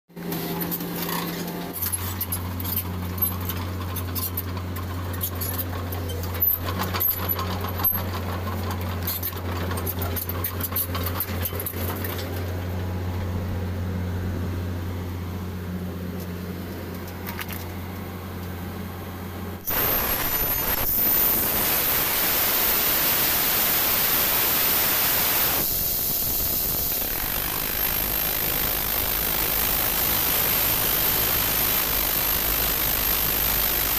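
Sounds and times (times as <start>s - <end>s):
drill rushing noise: 19.6s - 33.9s
drilling rig engine hum: 19.6s - 33.9s.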